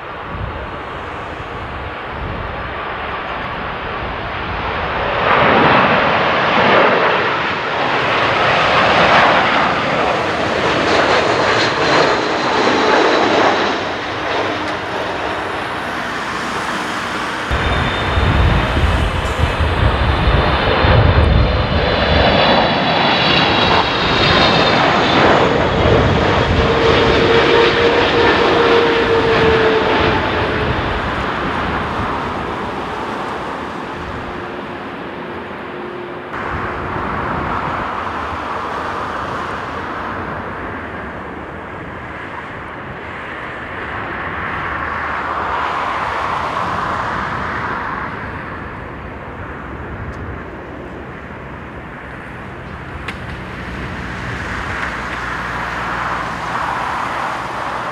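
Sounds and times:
jet engines roaring and whining: 0.0 - 57.9.

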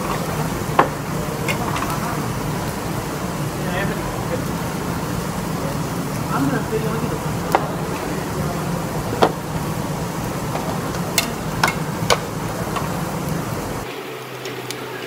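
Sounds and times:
restaurant background hum: 0.0 - 15.0
chopsticks and plates clicking: 10.5 - 13.0.

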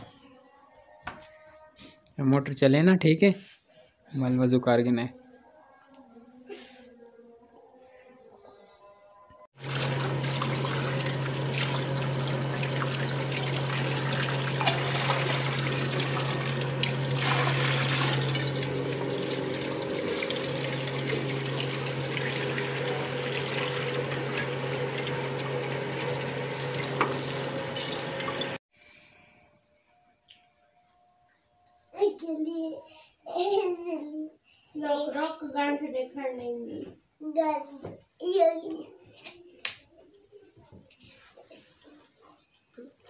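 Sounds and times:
tap water running into basin: 9.6 - 28.6
water pump motor humming: 9.6 - 28.6.

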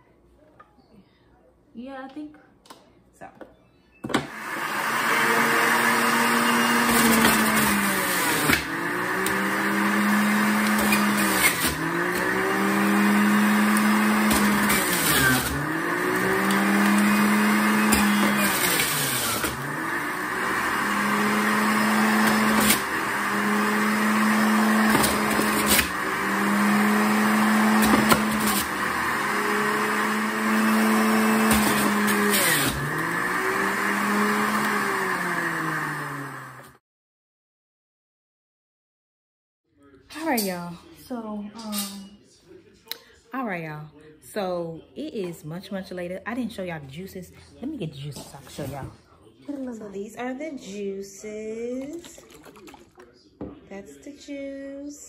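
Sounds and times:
juicer motor hum: 4.2 - 36.8, 52.1 - 53.1
steady grinding whir: 4.3 - 36.8.

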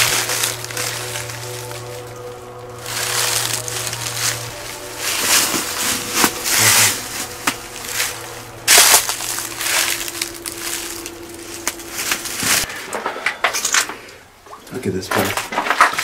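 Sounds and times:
footsteps crunching on dry leaves: 0.0 - 12.7.

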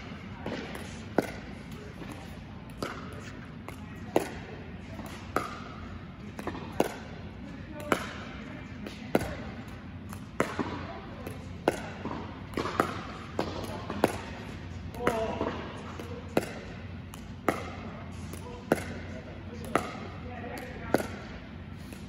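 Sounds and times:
ball bouncing: 0.0 - 22.0
paddle hitting plastic ball: 7.8 - 22.0.

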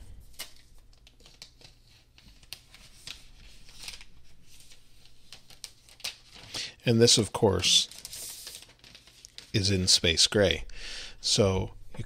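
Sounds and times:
plastic film crinkling: 0.2 - 9.7.

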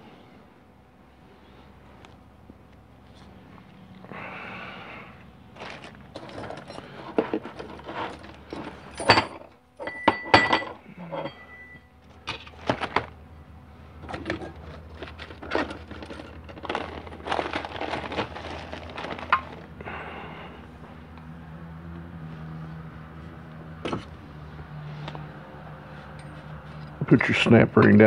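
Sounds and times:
metal tools clinking and knocking: 5.6 - 12.4, 26.1 - 27.1
metallic ring: 8.8 - 12.0.

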